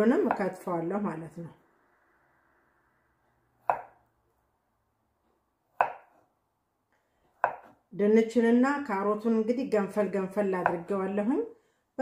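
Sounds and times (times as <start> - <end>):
knife cutting potato on board: 0.1 - 0.7, 3.6 - 4.1, 5.6 - 6.3, 7.2 - 7.8, 10.6 - 11.0.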